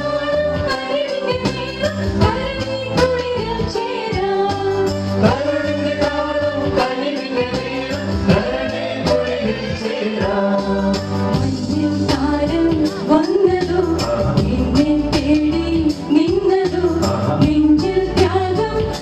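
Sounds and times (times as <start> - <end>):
amplified backing music: 0.0 - 19.0
group singing a carol: 5.2 - 13.0.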